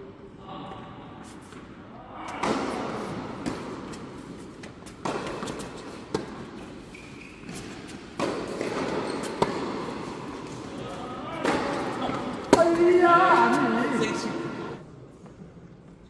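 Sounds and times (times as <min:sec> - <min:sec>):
tennis ball bouncing on court: 0:03.4 - 0:06.7, 0:07.5 - 0:10.6
tennis ball struck by rackets: 0:04.8 - 0:06.4, 0:07.6 - 0:09.9.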